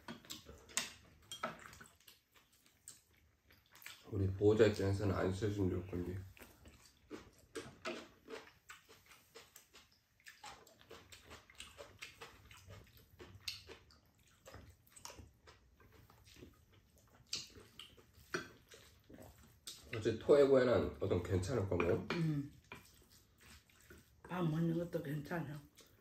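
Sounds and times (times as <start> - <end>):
people chewing and slurping: 0.0 - 26.0.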